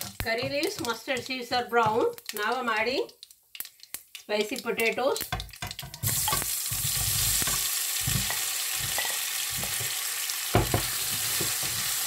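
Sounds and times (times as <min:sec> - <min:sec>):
spoon knocking in pan: 0:00.0 - 0:02.3, 0:05.3 - 0:12.0
potatoes sizzling in hot oil: 0:00.0 - 0:12.0.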